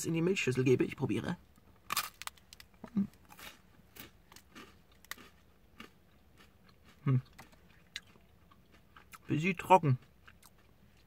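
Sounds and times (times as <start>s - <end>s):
crunchy chewing: 1.9s - 11.0s.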